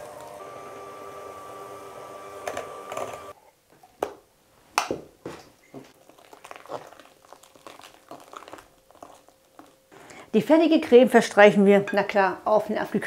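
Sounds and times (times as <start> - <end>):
electric hand mixer running: 0.0 - 3.4.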